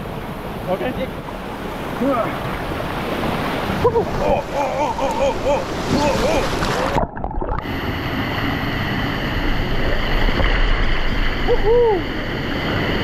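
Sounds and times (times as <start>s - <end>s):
waterfall rushing: 0.4s - 13.0s
water sloshing: 1.2s - 7.7s
camera plunging into water: 6.4s - 7.7s.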